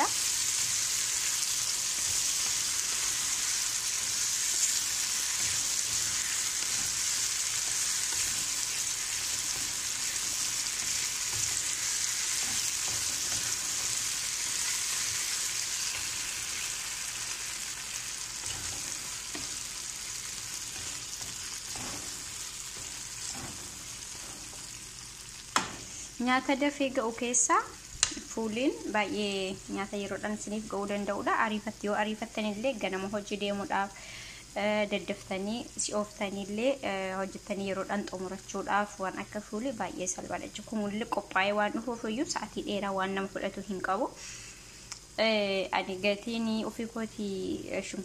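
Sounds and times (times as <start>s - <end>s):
beans sizzling in a frying pan: 0.0s - 48.0s
wooden spatula scraping: 2.0s - 16.7s, 18.4s - 24.8s.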